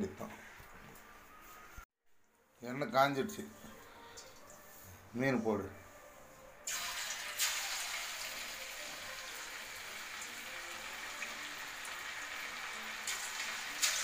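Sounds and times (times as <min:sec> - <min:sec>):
fish sizzling in hot oil: 0:06.7 - 0:14.0.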